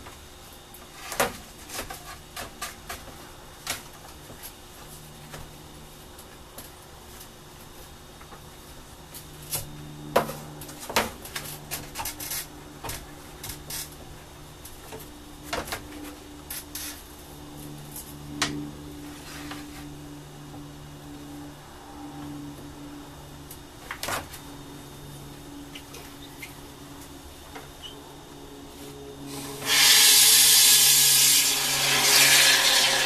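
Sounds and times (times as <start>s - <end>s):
low hum: 11.5s - 31.8s.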